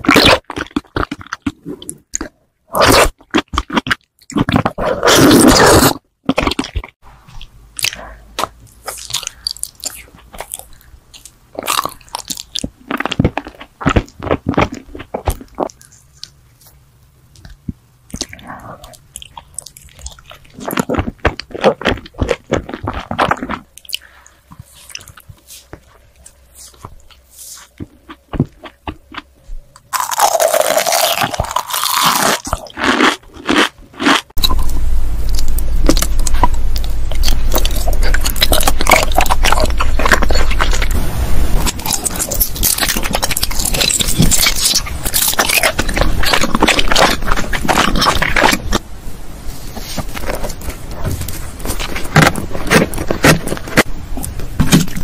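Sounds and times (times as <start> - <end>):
chewing and crunching in the mouth: 0.0 - 41.0, 41.6 - 48.8, 49.7 - 55.0.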